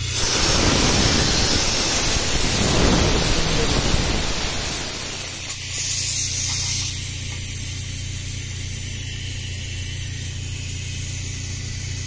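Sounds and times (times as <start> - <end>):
steady low hum: 0.0 - 5.8
pressurised air hissing: 0.0 - 6.8.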